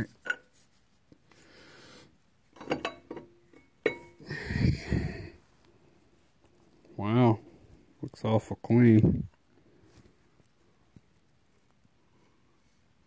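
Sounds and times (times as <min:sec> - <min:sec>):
rustle of gloved hands: 0:00.0 - 0:02.5.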